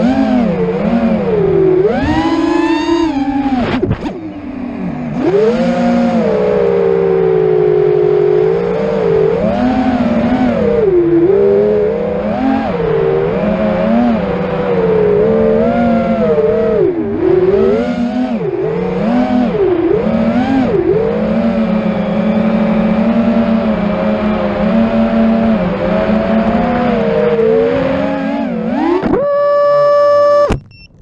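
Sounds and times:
quadcopter propellers whining: 0.0 - 30.6
sharp click: 30.5 - 31.0.

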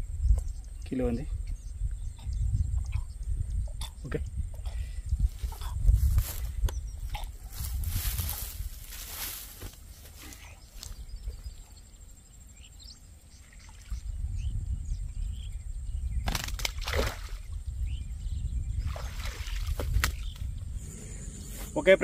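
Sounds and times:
faint bird chirps: 0.0 - 16.3
water splashing and sloshing: 16.4 - 17.5, 18.8 - 20.3
low rumble: 20.5 - 22.0.

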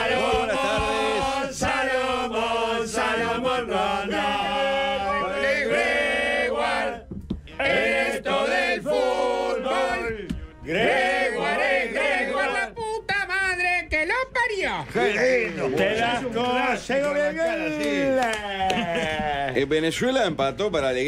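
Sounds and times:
men singing together: 0.0 - 12.8
backing music: 0.0 - 18.2.

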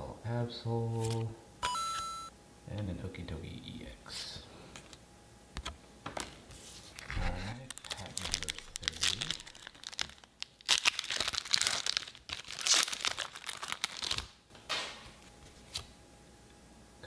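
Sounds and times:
foil wrapper tearing and crinkling: 6.9 - 14.4.

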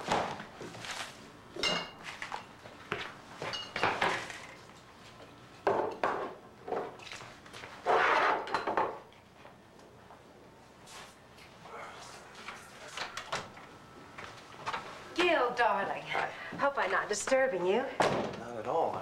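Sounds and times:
glass clinks: 1.6 - 2.0, 3.4 - 4.0
dishes and bottles clattering: 1.6 - 2.4, 3.4 - 4.6, 8.2 - 9.0.

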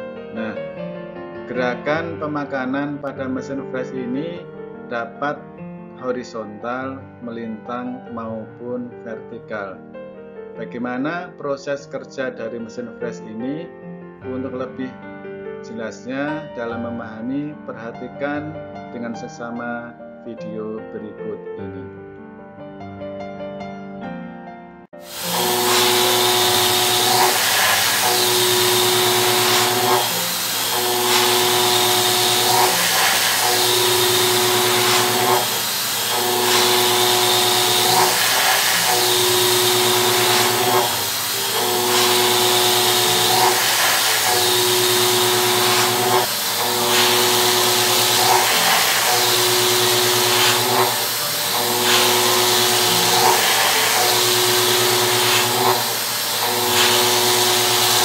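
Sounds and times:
metal cutting hiss: 25.0 - 58.0
milling machine whine: 25.0 - 58.0.

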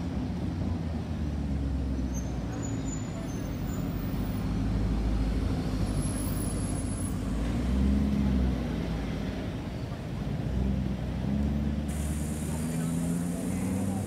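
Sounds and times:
car engine at low revs: 10.3 - 14.0.

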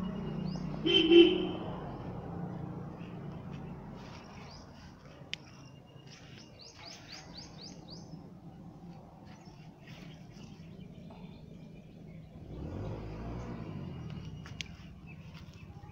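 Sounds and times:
bird chirping: 2.9 - 15.9.

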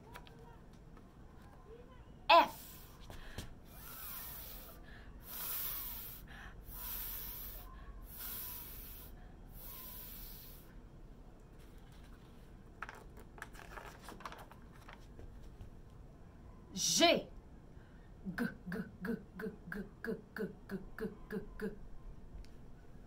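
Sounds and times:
woman hissing: 3.7 - 10.6.

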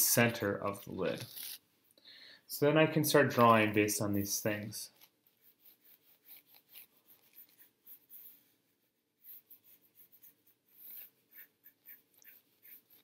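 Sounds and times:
pencil scratching on paper: 4.9 - 13.0.

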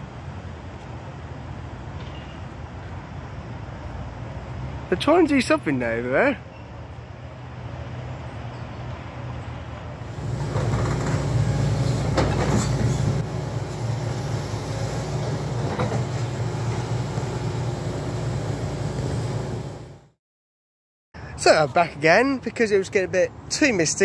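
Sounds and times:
diesel construction machines running: 10.0 - 20.2.

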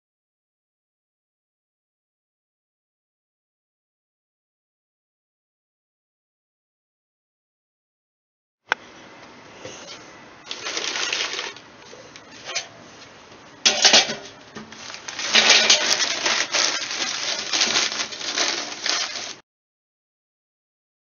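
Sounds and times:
charcoal clattering on metal grate: 10.5 - 11.6, 12.4 - 12.8, 13.6 - 19.4.

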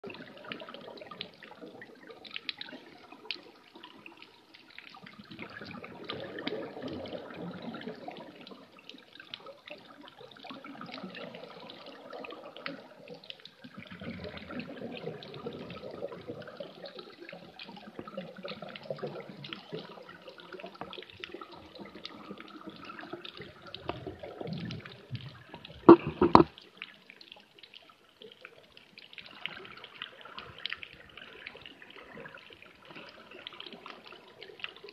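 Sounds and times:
muffled underwater rushing water: 0.0 - 34.9
sharp knocks: 25.9 - 26.5.

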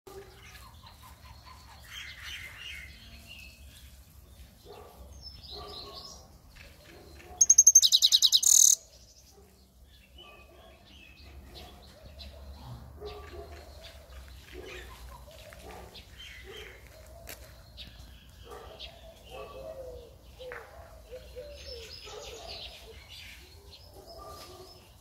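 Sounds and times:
songbird chirping: 0.2 - 12.2
fast run of sharp bird notes: 7.4 - 8.8.

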